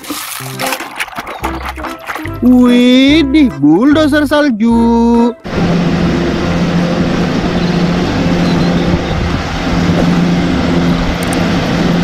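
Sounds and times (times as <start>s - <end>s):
diesel engine droning: 2.3s - 12.0s.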